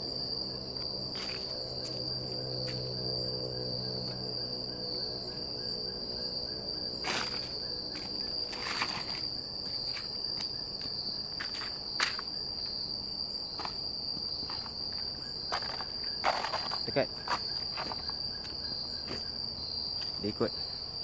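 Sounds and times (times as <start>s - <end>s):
night insects chirring: 0.0s - 21.0s.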